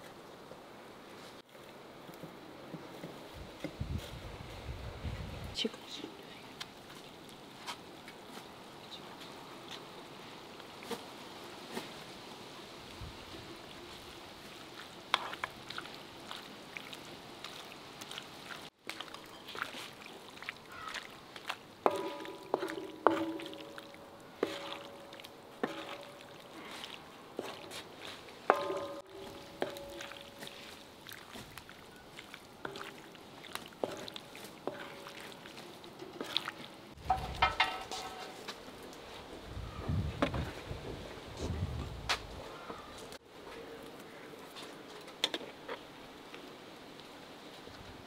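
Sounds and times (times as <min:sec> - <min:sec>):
wooden spatula scraping a pan: 0:14.8 - 0:15.8, 0:21.8 - 0:23.8, 0:24.4 - 0:31.6, 0:32.2 - 0:38.6
spatula knocking against metal pan: 0:28.5 - 0:30.2, 0:37.1 - 0:38.2.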